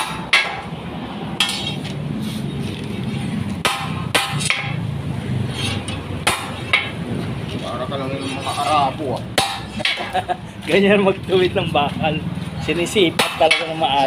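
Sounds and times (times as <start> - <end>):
hammer striking steel bar: 0.0 - 0.7, 1.4 - 1.8, 3.6 - 4.8, 5.6 - 7.0, 9.4 - 10.2, 13.2 - 13.8.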